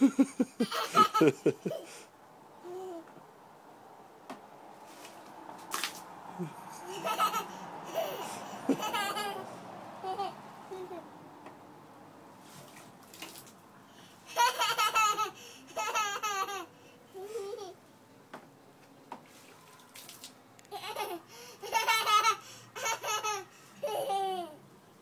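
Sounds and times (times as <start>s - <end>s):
toddler laughing and squealing: 6.4s - 11.2s, 20.7s - 24.6s.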